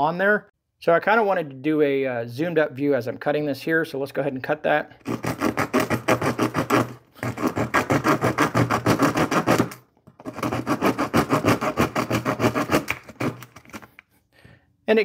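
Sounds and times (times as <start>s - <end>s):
small saw cutting wood: 5.0s - 13.9s.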